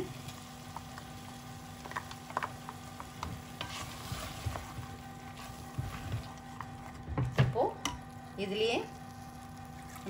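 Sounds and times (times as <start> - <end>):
faint sizzle: 0.0 - 10.0
spatula scraping and tapping pan: 1.8 - 4.9.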